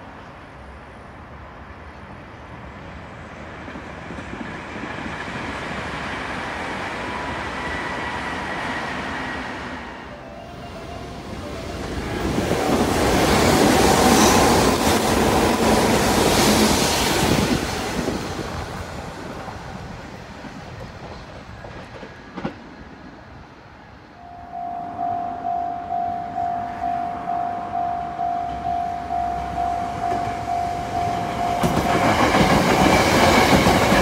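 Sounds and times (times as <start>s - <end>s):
electric train passing: 0.0s - 34.0s
level-crossing bell ringing: 24.2s - 32.2s.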